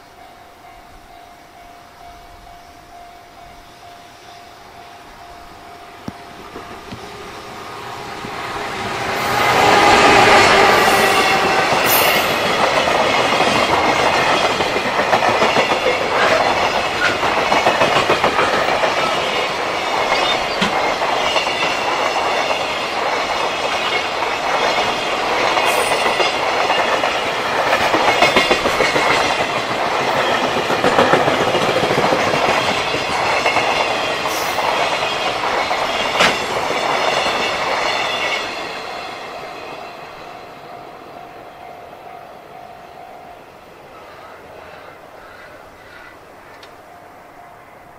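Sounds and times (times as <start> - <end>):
train wheels clacking over rail joints: 8.1 - 38.9.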